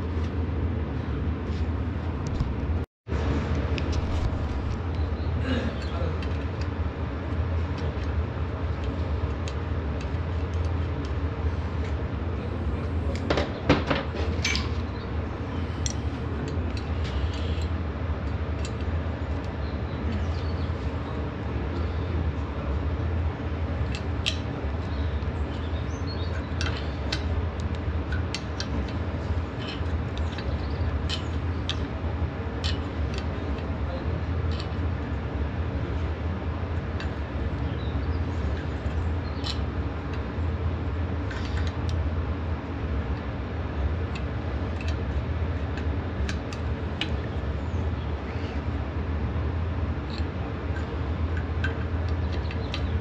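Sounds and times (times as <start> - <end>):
low hum: 0.0 - 53.0
steel wrenches clinking: 14.0 - 14.9, 28.1 - 31.9.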